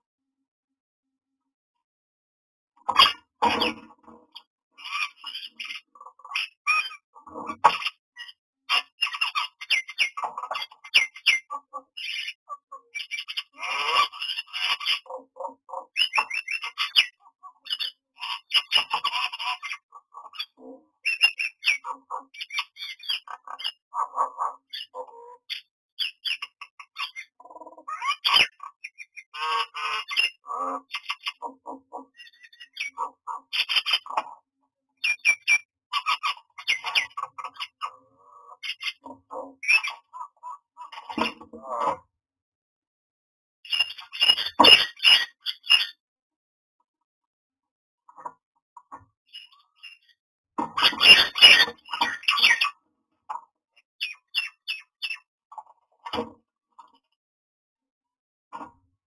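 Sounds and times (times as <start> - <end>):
bird squawks and chatter: 2.8 - 42.1, 43.6 - 46.0, 48.1 - 57.0.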